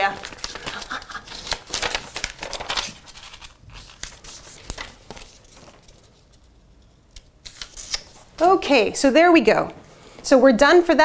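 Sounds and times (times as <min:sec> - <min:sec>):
paper sticky notes rustling: 0:00.0 - 0:06.5, 0:07.2 - 0:08.6.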